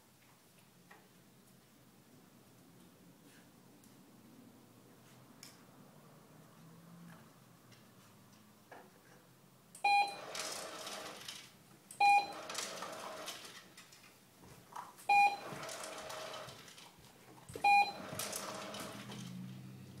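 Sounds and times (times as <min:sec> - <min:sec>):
dispenser short beep: 0:17.6 - 0:18.0
dispenser whirring and rattling: 0:17.6 - 0:19.7.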